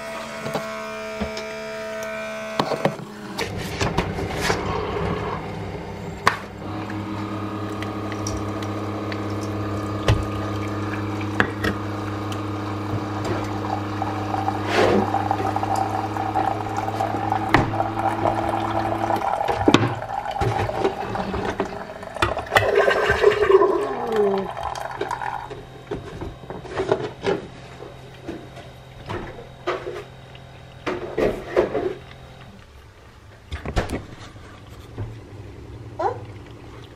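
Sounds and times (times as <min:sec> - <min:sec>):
coffee maker pump humming: 0:00.0 - 0:36.9
brewer gurgling and sputtering: 0:02.8 - 0:36.9.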